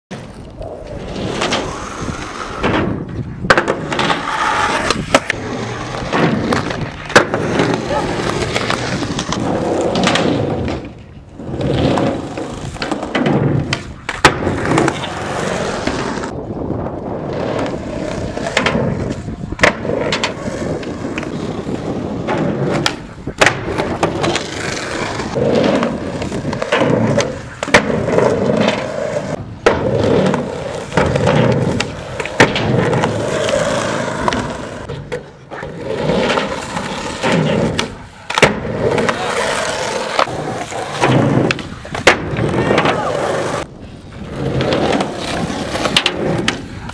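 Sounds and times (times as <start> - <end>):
skateboard wheels rolling on concrete: 0.1 - 46.9
skateboard tail pops: 2.6 - 11.0, 18.4 - 21.3, 22.2 - 24.5, 29.6 - 33.2, 40.1 - 43.7
skateboard landings clacking: 2.6 - 16.3, 17.3 - 21.3, 22.2 - 35.6, 36.2 - 43.7.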